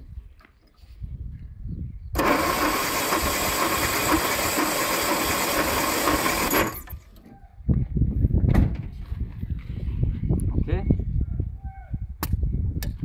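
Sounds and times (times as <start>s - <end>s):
engine cranking on starter motor: 2.2s - 7.0s.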